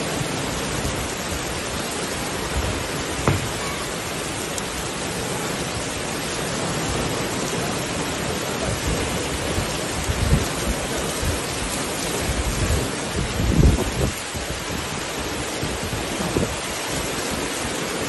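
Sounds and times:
heavy rain: 0:00.0 - 0:18.0
low thumps: 0:03.2 - 0:03.9.

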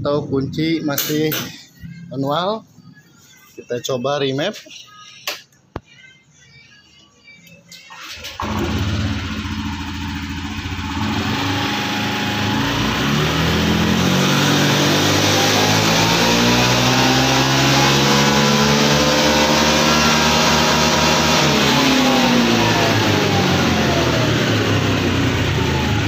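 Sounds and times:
scooter engine at full throttle: 0:08.3 - 0:26.0.

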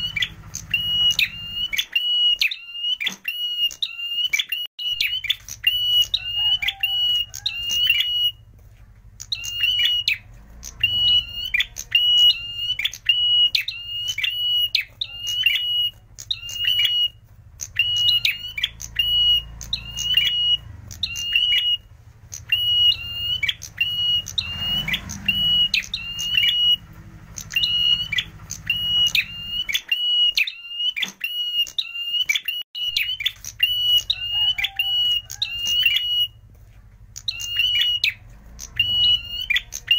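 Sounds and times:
bird singing high notes: 0:09.3 - 0:36.4.

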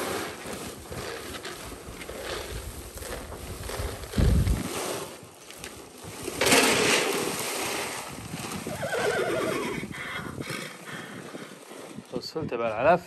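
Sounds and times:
horse neighing: 0:08.6 - 0:11.6.

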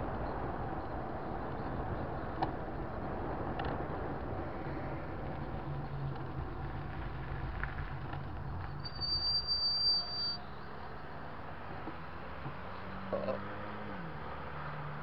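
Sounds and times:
road and engine hum: 0:00.0 - 0:15.0
high thin brake squeal: 0:08.8 - 0:10.7.

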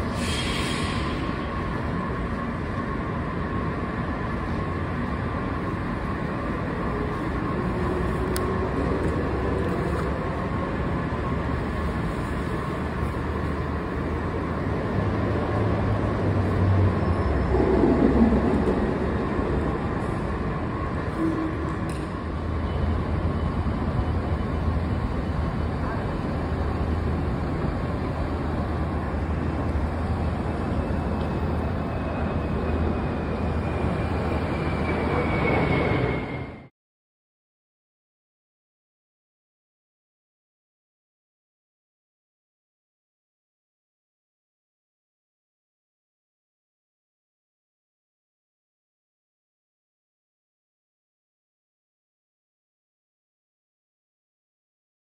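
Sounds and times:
subway station rumble: 0:00.0 - 0:36.7.

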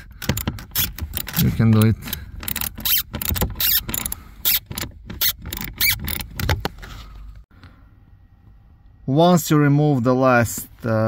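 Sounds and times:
hand ratchet clicking: 0:00.2 - 0:06.5.

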